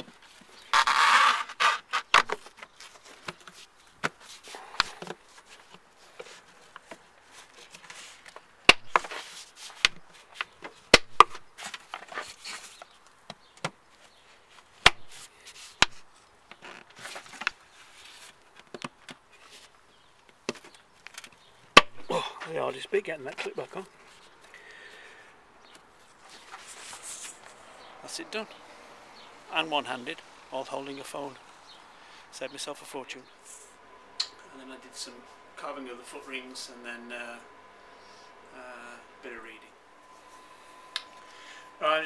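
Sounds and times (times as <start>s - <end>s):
gloved hands rubbing and scraping: 0.0s - 13.0s, 13.9s - 18.6s, 25.9s - 27.9s.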